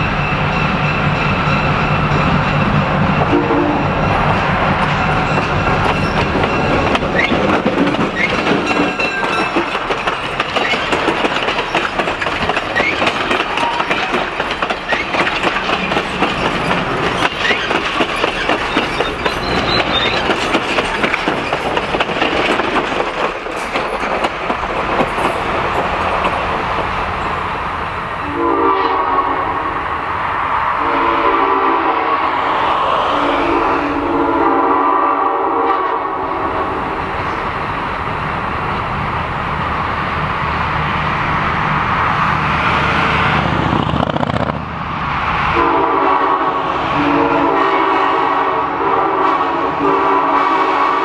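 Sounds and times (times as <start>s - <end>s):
diesel locomotive passing: 0.0s - 51.0s
locomotive air horn blasts: 3.3s - 3.8s, 28.2s - 29.7s, 30.8s - 32.3s, 33.5s - 36.3s, 45.6s - 51.0s
train wheels clattering over rail joints: 4.3s - 27.2s.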